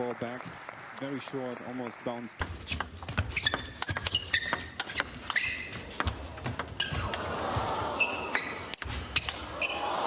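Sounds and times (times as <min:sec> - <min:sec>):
shoes squeaking on floor: 0:02.6 - 0:09.8
crowd noise: 0:05.8 - 0:10.0.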